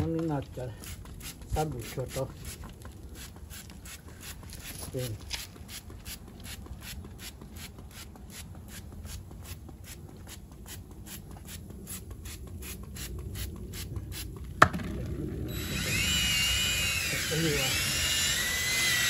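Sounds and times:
cordless drill motor whine: 15.5 - 19.0.

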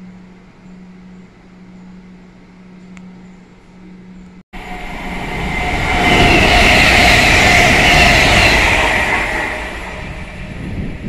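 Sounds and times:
train passing on tracks: 4.6 - 11.0.

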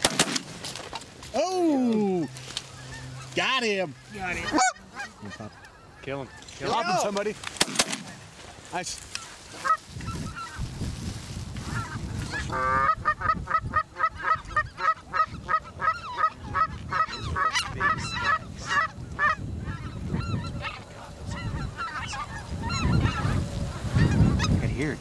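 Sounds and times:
geese honking and yelping: 1.8 - 7.2, 9.1 - 10.8, 11.5 - 25.0
wind on microphone: 9.6 - 25.0.

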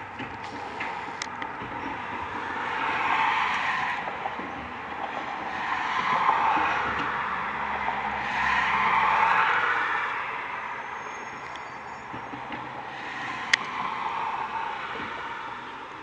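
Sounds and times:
garbage truck engine and machinery: 0.0 - 16.0.

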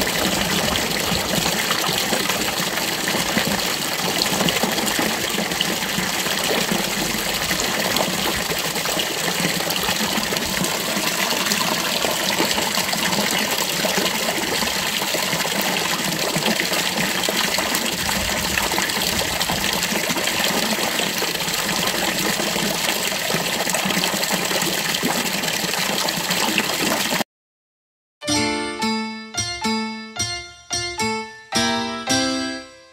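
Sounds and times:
fountain water splashing: 0.0 - 27.2
plucked keyboard music: 28.2 - 32.9.

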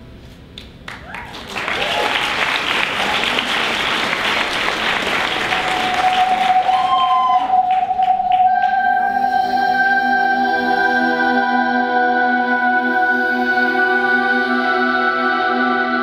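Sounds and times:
audience applauding: 0.8 - 8.8
audience cheer: 0.9 - 8.6
slow ambient synthesizer music: 3.8 - 16.0.

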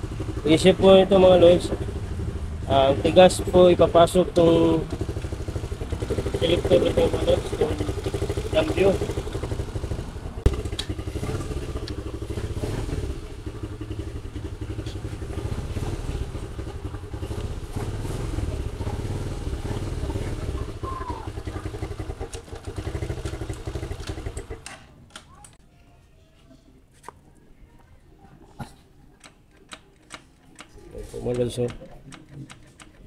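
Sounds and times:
single-cylinder engine running: 0.0 - 24.7.

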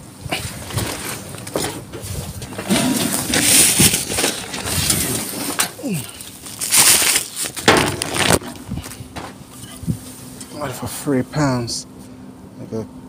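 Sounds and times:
plastic bags crinkling: 3.2 - 8.7.

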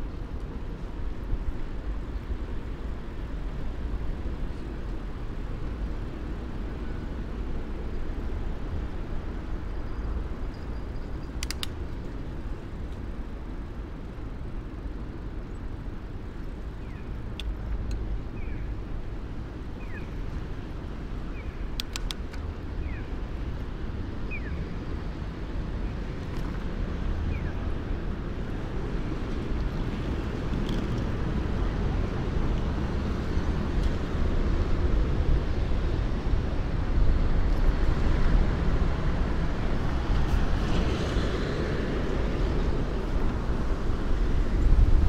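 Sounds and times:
bicycle riding rumble: 0.0 - 45.0
wind: 0.0 - 45.0
sharp clicks: 11.4 - 11.8, 21.8 - 22.5.

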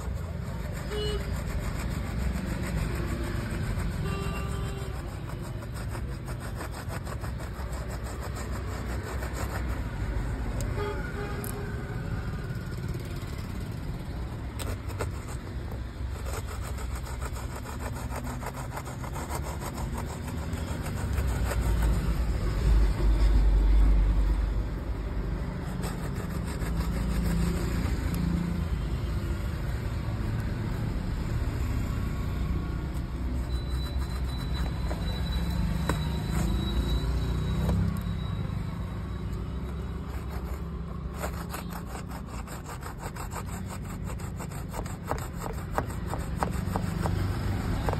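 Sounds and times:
vehicle engine rumbling: 0.0 - 18.3.

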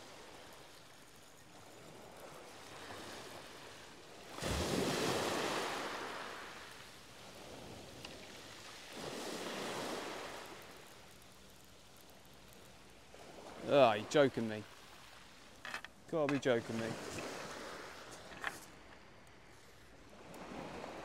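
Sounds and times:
waves breaking on shingle: 13.5 - 18.9.

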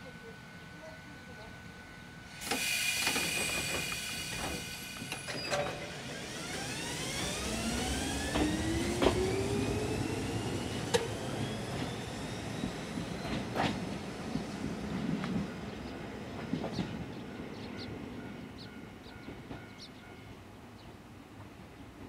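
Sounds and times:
electric train motor whine: 0.4 - 16.0.

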